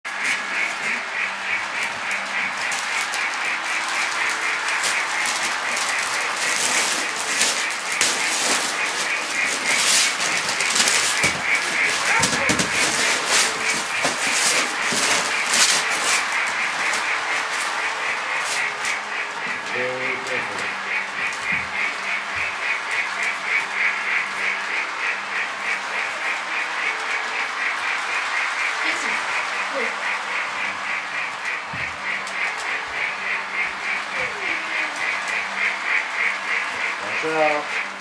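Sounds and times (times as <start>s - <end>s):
fast-pulsing chirp: 0.1s - 38.0s
wrapping paper tearing: 2.1s - 17.8s.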